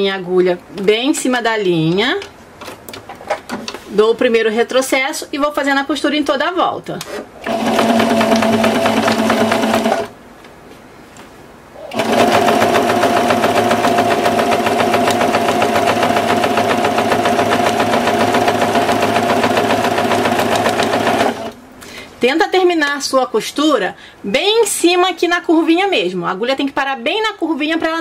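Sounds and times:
sewing machine stitching: 0:07.4 - 0:10.1, 0:11.9 - 0:21.6.

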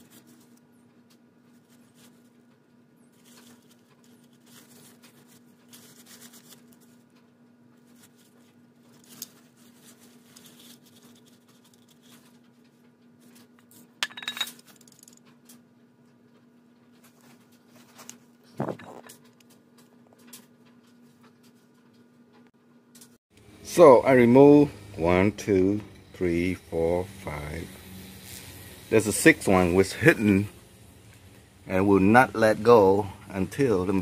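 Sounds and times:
metal tools clinking: 0:14.0 - 0:15.2.

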